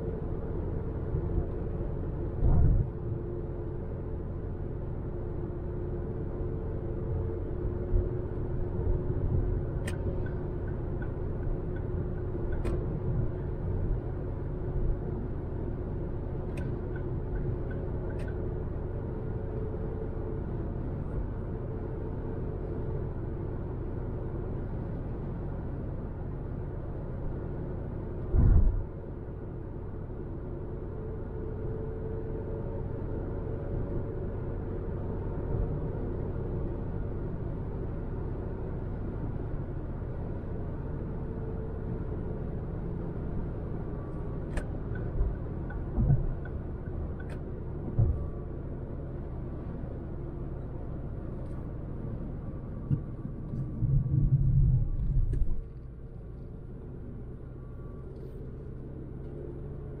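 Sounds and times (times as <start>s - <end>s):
car engine and road noise: 0.0s - 60.0s.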